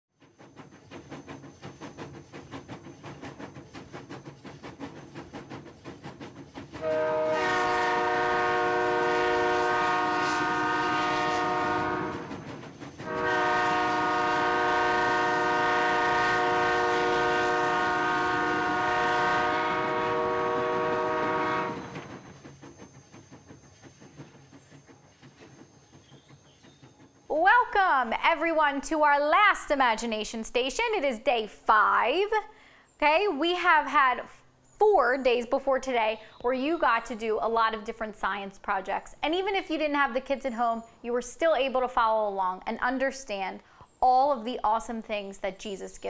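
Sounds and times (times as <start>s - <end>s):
steam train running beat: 0.1s - 30.9s
train whistle blasts: 6.8s - 12.4s, 13.0s - 22.1s.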